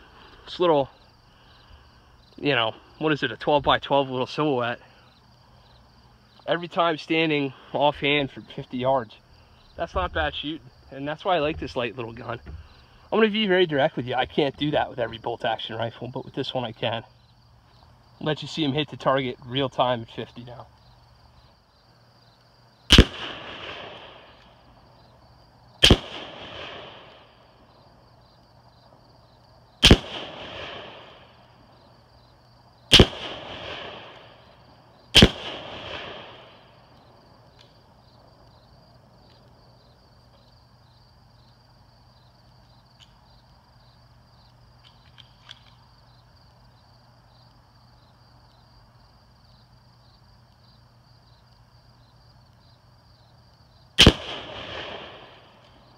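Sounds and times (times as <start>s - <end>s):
outdoor background: 0.0s - 55.9s
rifle shots with echo: 22.9s - 24.4s, 25.8s - 27.4s, 29.8s - 31.5s, 32.9s - 36.7s, 54.0s - 55.6s.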